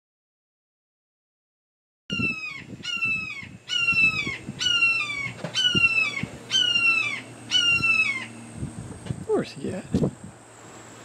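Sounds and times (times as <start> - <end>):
hawk screaming: 2.1 - 8.4.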